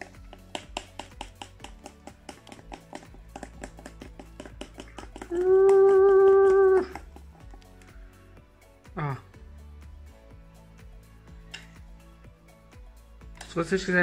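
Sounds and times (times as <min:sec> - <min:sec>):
whisk beating batter in bowl: 0:00.0 - 0:07.5.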